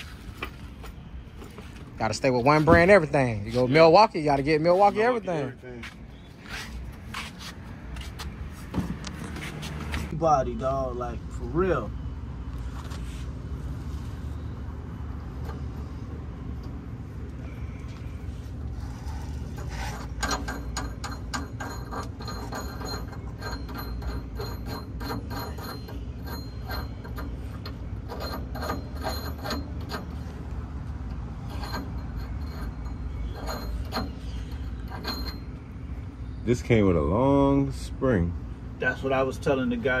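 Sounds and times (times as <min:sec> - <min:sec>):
steady low hum: 0:00.0 - 0:40.0.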